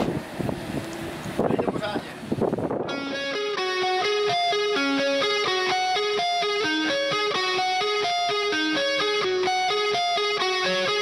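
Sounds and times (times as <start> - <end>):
guitar picking melody: 2.8 - 11.0.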